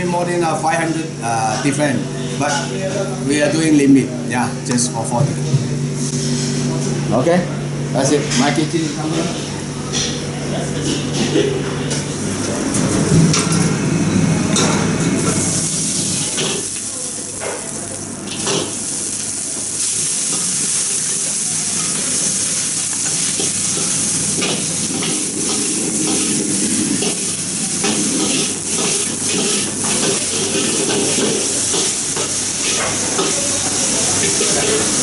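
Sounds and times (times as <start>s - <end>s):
vegetables sizzling in a wok: 15.2s - 35.0s.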